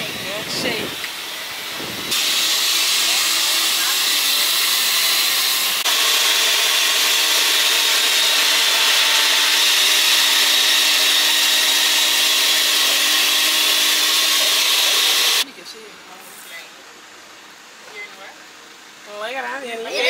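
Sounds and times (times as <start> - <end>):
electric blender running: 0.0 - 15.4.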